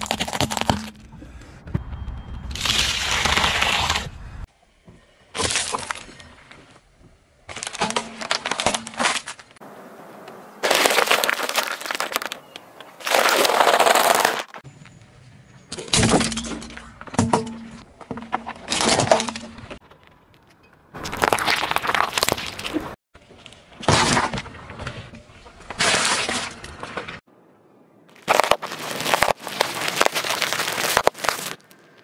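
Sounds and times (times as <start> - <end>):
tyre crushing food: 0.0 - 0.9, 10.6 - 14.6, 21.0 - 23.0, 28.1 - 31.8
celery stalks snapping: 10.6 - 12.4, 28.2 - 32.0
dry pasta crunching: 10.6 - 14.5, 21.0 - 22.8, 28.2 - 32.0.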